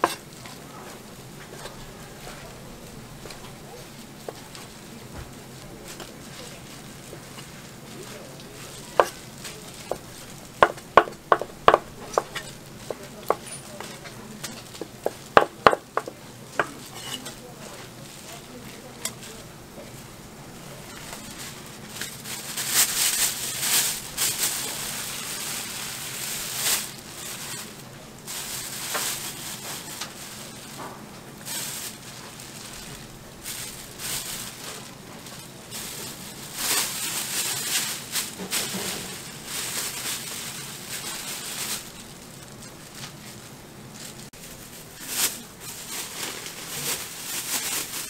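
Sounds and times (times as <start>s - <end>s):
plastic bags crinkling: 0.0s - 20.0s, 20.7s - 48.0s.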